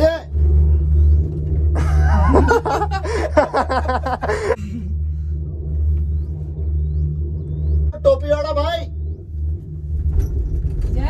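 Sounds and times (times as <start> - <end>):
low rumble of cable car: 0.0 - 11.0
person laughing: 1.8 - 4.9.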